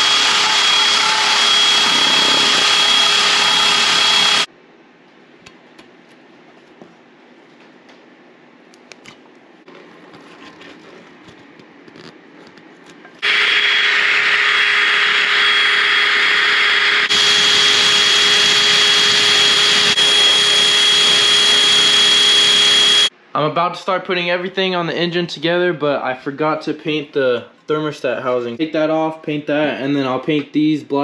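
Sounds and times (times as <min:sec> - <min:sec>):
wire brush drill whining: 0:00.0 - 0:04.5, 0:13.2 - 0:23.1.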